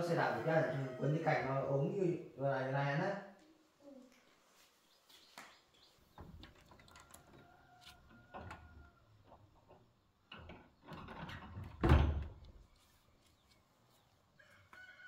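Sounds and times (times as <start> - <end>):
wooden door shutting and latching: 10.3 - 12.4.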